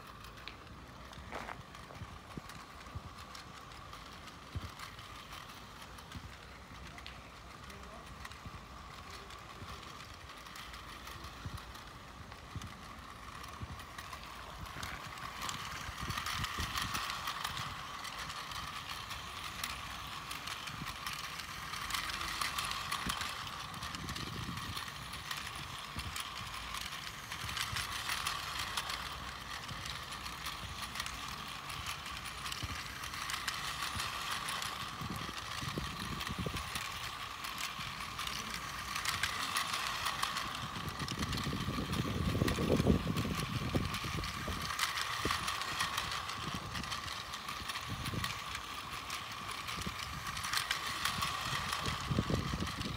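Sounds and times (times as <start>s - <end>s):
toy train motor whirring: 0.0s - 52.9s
wheels clicking on track joints: 0.0s - 52.9s
wind rumble: 10.9s - 52.9s.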